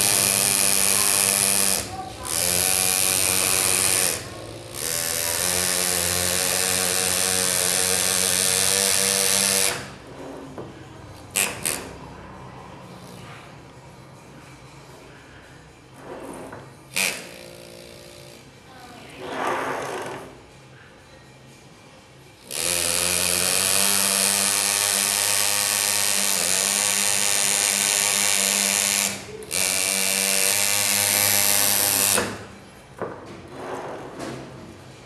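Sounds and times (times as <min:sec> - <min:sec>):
pneumatic engraver buzzing on metal: 0:00.0 - 0:10.2, 0:11.1 - 0:12.1, 0:16.4 - 0:18.5, 0:22.4 - 0:32.6.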